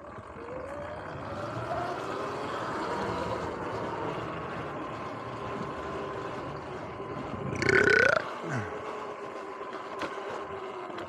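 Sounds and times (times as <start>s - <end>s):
electric motor whining: 2.6s - 11.0s
loud rising-pitch sound: 7.6s - 8.2s.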